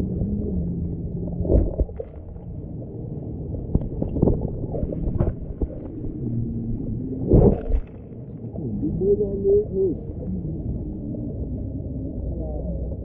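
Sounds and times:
steady low hum: 0.0 - 13.0
underwater rumble of moving water: 0.0 - 13.0.

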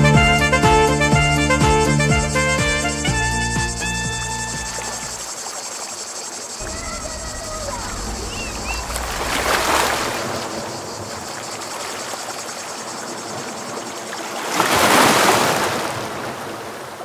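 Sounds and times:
sea waves washing in: 4.7 - 17.0.

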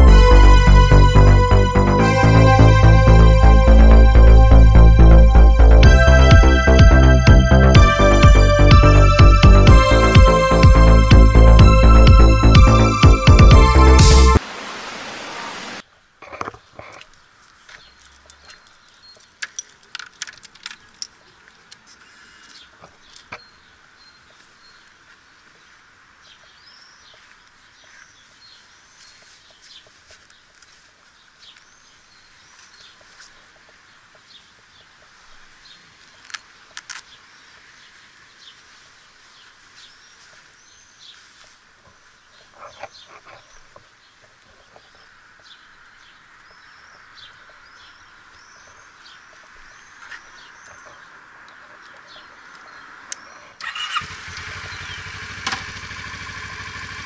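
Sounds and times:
motorcycle engine starting and idling: 0.0 - 14.4, 53.6 - 57.0
birds chirping: 0.0 - 15.8, 16.6 - 56.8.

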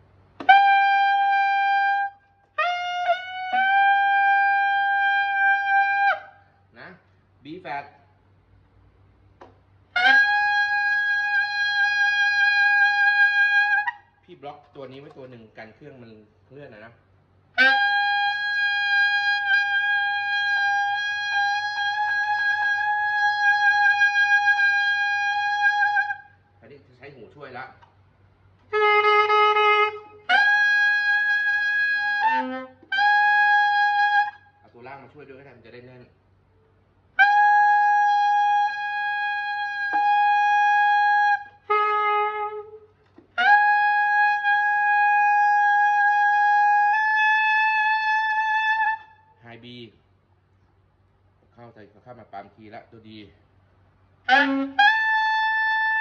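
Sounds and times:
tenor saxophone high notes: 54.3 - 56.0.

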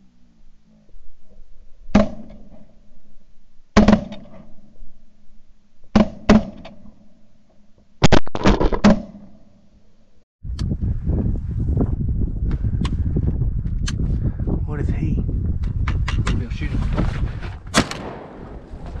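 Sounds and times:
shotgun blasts: 17.7 - 18.8.

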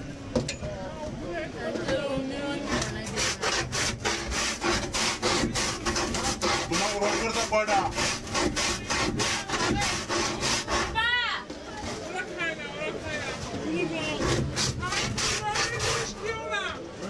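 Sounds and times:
ice scraping over blade: 2.6 - 12.3, 14.0 - 16.7.

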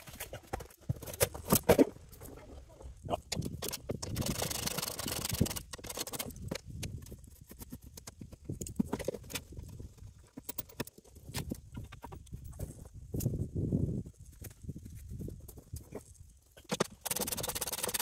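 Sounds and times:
gravel crunching and scraping: 0.0 - 17.0
metal parts clicking and knocking: 3.2 - 11.6, 16.6 - 18.0.

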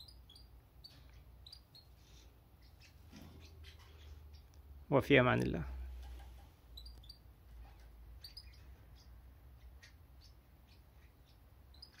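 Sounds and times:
goldfinches chirping: 0.0 - 4.6, 6.7 - 12.0.

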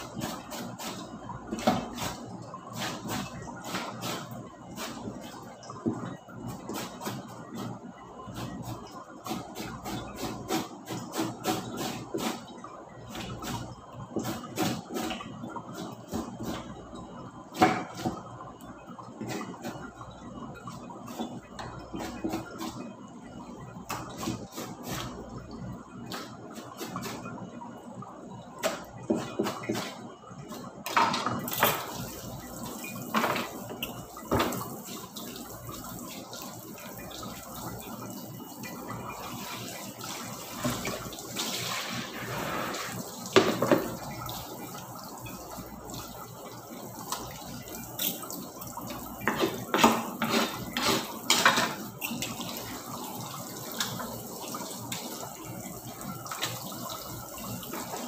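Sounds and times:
tap running into sink: 33.1 - 34.7, 42.3 - 44.2
splashes and knocks: 43.3 - 44.0.

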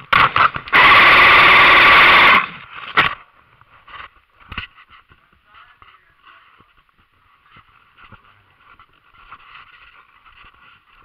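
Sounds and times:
airsoft gun full-auto burst: 0.0 - 2.6
sharp cracks: 0.0 - 3.3.

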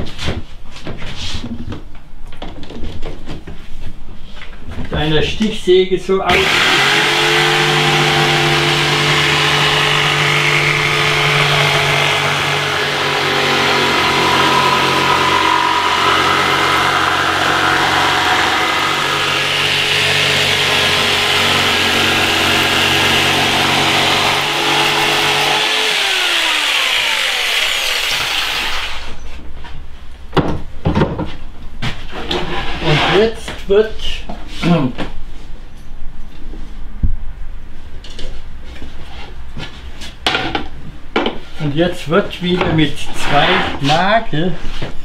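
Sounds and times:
electric jigsaw sawing wood: 6.3 - 29.2.

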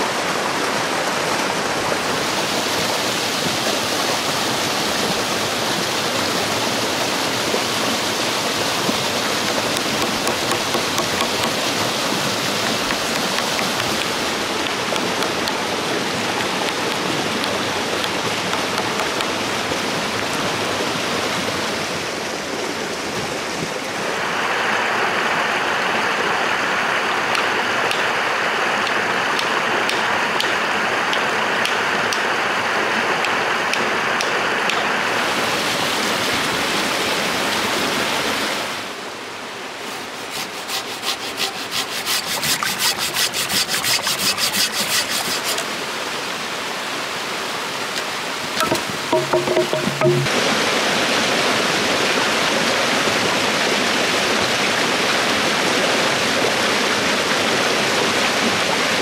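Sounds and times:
stream rushing over rocks: 0.0 - 59.0
hand tool scraping wood: 9.4 - 15.6, 16.4 - 19.3, 39.8 - 45.8, 48.6 - 50.3.

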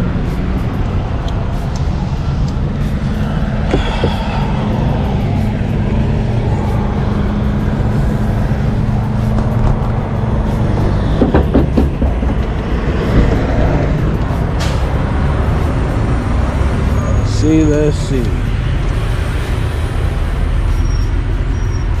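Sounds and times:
diesel engine idling: 0.0 - 22.0
short knocks: 11.0 - 13.5.

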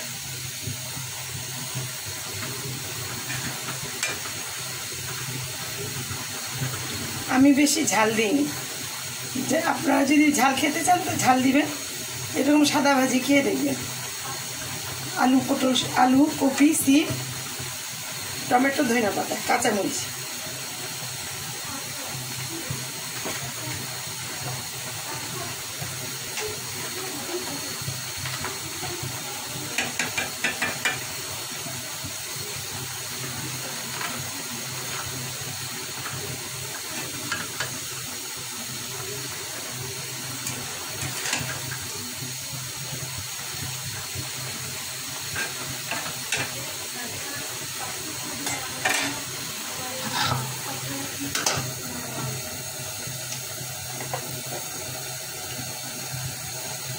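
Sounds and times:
vegetables hissing in pan: 0.0 - 56.9
spatula scraping a pan: 3.2 - 4.3, 45.3 - 46.6, 50.0 - 50.6.

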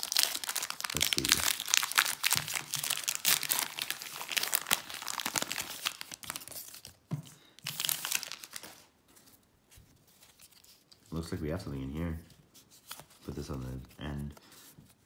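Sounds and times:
wrapper being torn and crinkled: 0.0 - 6.8, 7.7 - 8.9.

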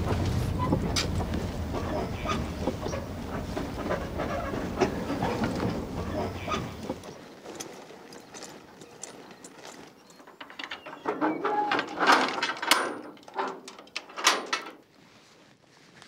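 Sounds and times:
metal gate latch clanking: 10.6 - 14.7.

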